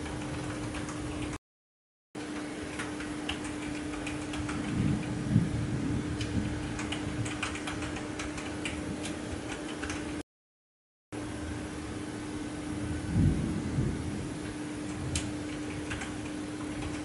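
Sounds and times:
distant thunder rumble: 4.4s - 7.7s, 12.6s - 15.3s.

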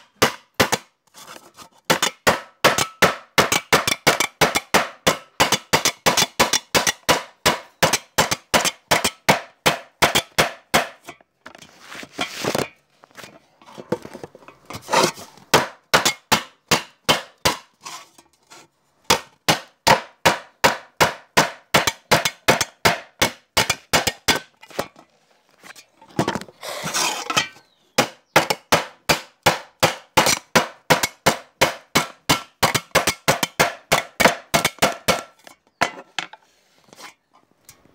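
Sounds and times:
rustling and scraping: 1.0s - 1.9s, 11.0s - 15.5s, 17.7s - 19.1s, 24.5s - 27.7s, 35.4s - 37.9s.

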